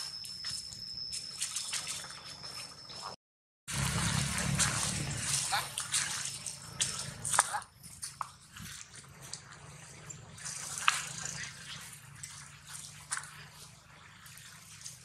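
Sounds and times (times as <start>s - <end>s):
leaves crackling underfoot: 3.7s - 9.5s.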